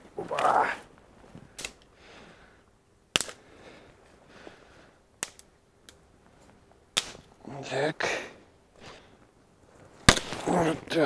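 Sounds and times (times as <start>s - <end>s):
branches snapping: 0.0s - 1.9s, 3.1s - 3.5s, 5.2s - 7.4s, 10.0s - 10.7s.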